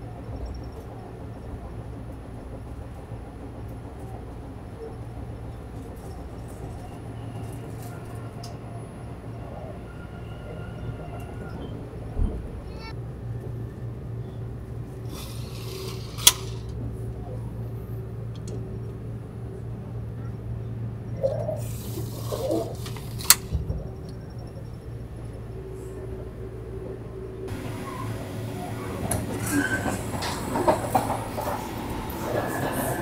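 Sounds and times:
train interior hum: 0.0s - 33.0s.

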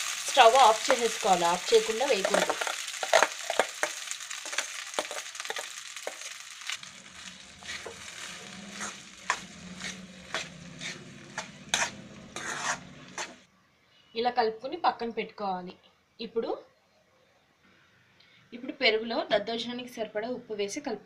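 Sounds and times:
oil sizzling: 0.0s - 13.5s
spoon scraping a pan: 0.5s - 13.5s.

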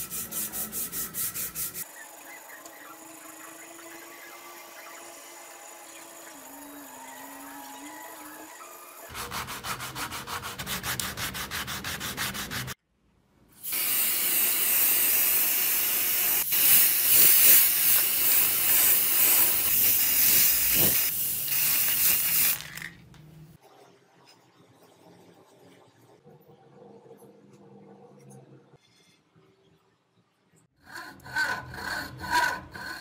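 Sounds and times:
sanding strip scraping wood: 0.0s - 1.9s, 9.1s - 12.8s
aerosol can spraying hiss: 13.7s - 22.7s.

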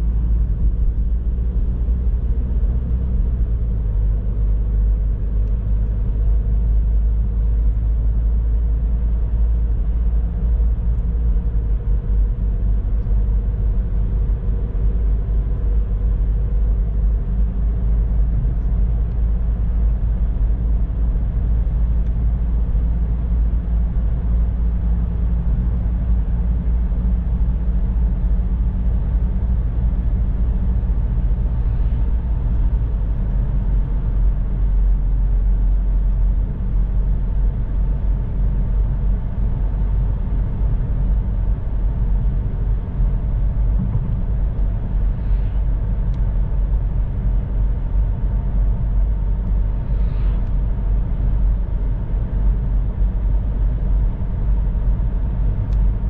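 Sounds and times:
car engine and tyre rumble: 0.0s - 56.0s
faint pitch-shifting hum: 12.3s - 56.0s.

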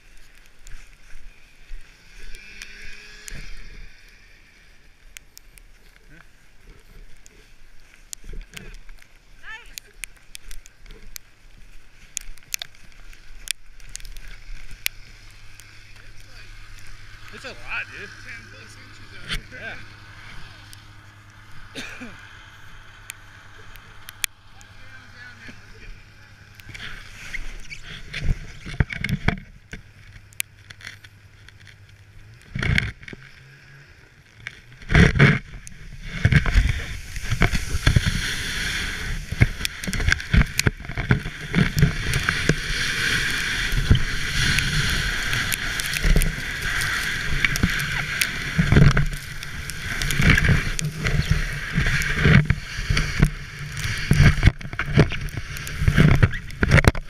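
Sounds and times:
rushing hiss of snow and wind: 0.0s - 57.0s
sled knocks and jolts: 34.6s - 57.0s.

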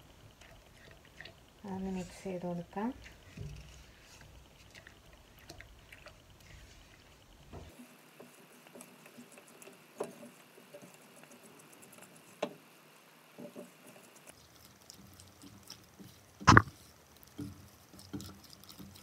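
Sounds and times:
spatula stirring thick mixture: 0.0s - 12.7s, 13.3s - 19.0s
sharp taps: 16.5s - 16.7s.

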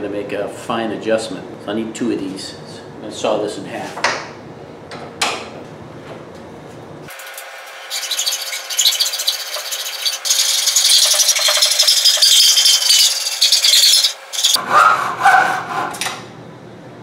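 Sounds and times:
hacksaw cutting metal: 7.1s - 16.1s.

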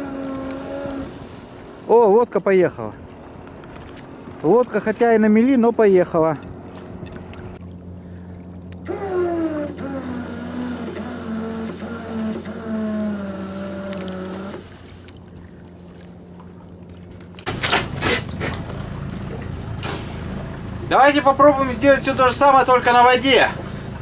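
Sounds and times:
anchor winch motor whining: 0.0s - 1.2s, 6.6s - 15.2s.

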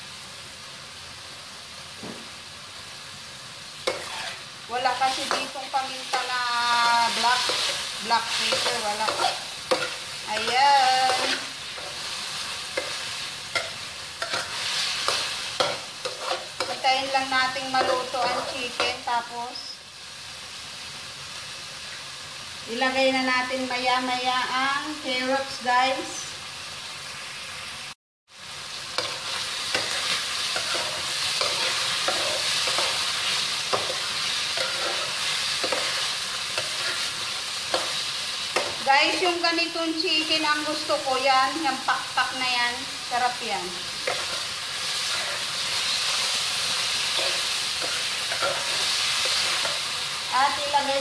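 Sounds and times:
food sizzling in a wok: 0.0s - 51.0s
spatula knocking and scraping pan: 5.1s - 12.1s, 12.7s - 16.8s, 17.6s - 19.0s, 29.0s - 33.0s, 33.7s - 36.0s, 37.7s - 38.8s.

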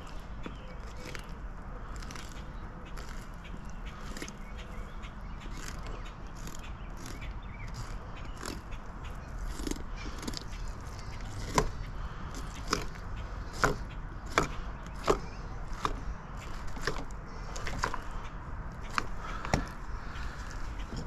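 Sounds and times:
knife crunching through scaly fish skin: 9.4s - 18.0s.

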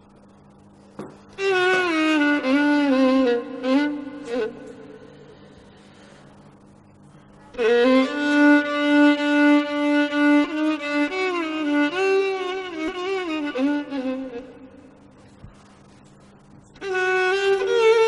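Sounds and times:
slow sad solo violin melody: 1.4s - 5.1s, 7.5s - 14.7s, 16.8s - 18.0s.

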